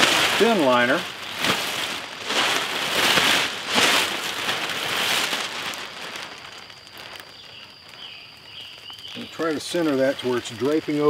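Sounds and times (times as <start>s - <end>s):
plastic bin liner rustling: 0.0s - 7.3s.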